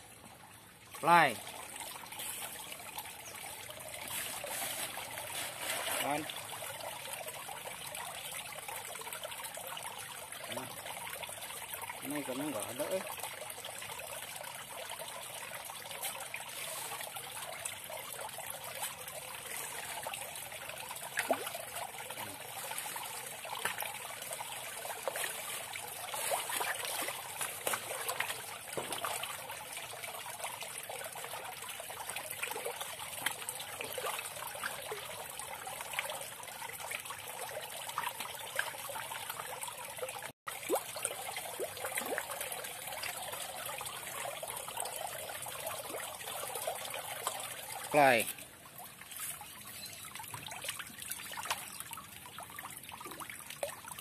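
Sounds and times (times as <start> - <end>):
water trickling into pond: 0.0 - 54.0.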